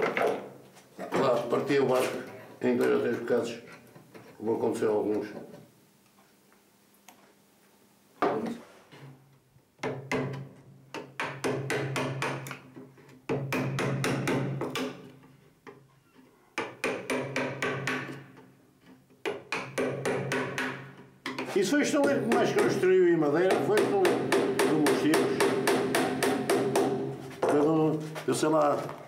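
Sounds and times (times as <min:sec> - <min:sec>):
small hammer tapping nails: 0:19.2 - 0:22.8.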